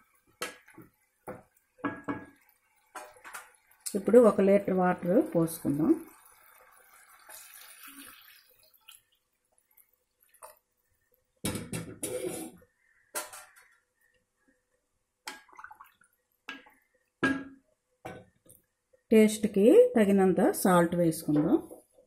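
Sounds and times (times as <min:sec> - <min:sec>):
water pouring into pan: 0:00.0 - 0:11.2, 0:15.3 - 0:16.8.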